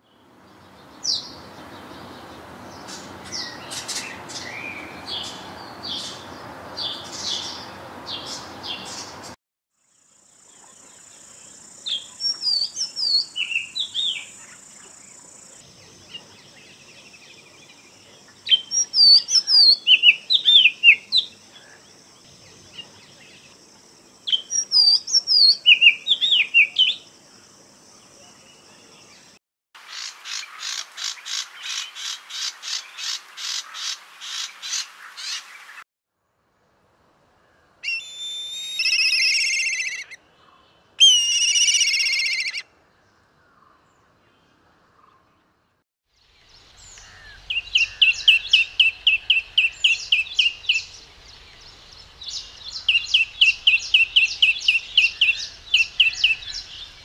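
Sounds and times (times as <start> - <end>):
whistled birdsong: 11.9 - 14.6, 18.5 - 21.4, 24.3 - 27.1, 37.8 - 42.7, 46.2 - 57.0
sparrow chirping: 37.8 - 40.2, 41.0 - 42.6, 46.6 - 57.0
bird rapid repeated notes: 38.6 - 40.2, 41.1 - 42.6.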